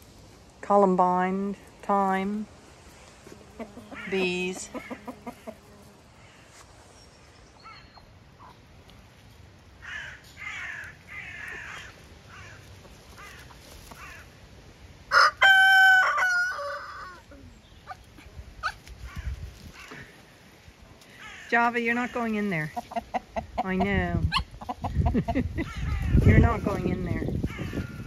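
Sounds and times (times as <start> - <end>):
chickens clucking: 2.8 - 6.8, 21.0 - 28.0
rooster crowing: 15.1 - 17.3.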